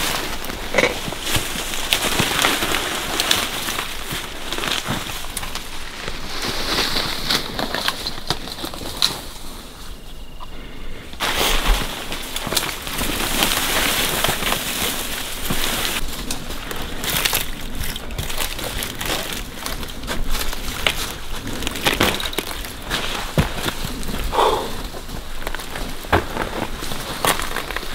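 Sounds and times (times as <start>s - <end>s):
dry brush scraping and crackling: 0.0s - 27.9s
footsteps on rocky ground: 11.2s - 27.9s.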